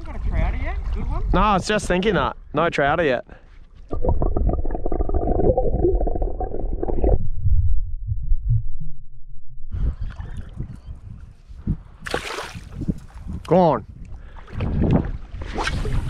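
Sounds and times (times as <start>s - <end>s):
underwater bubbling knocks: 3.9s - 9.7s
muffled underwater rumble: 3.9s - 11.9s
shallow water sloshing and splashing: 12.0s - 13.2s.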